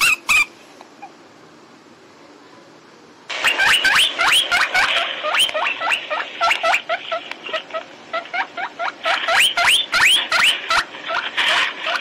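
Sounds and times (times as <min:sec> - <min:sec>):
small animal squeaking: 0:00.0 - 0:01.2, 0:03.4 - 0:11.3.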